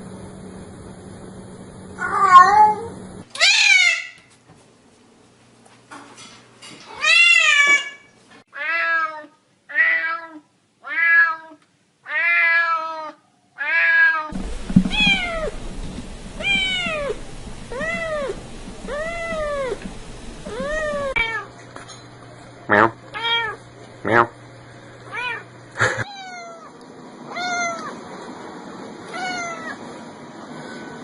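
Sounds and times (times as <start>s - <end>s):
cat meowing: 2.0s - 2.8s, 3.4s - 4.2s, 7.0s - 8.0s, 8.6s - 14.3s, 16.4s - 17.1s, 20.5s - 21.5s, 23.2s - 23.6s, 25.1s - 28.0s, 29.0s - 29.8s
faint background hiss: 14.4s - 21.4s
kitten meowing: 16.4s - 17.1s, 26.1s - 26.7s, 27.3s - 27.9s, 29.1s - 29.8s.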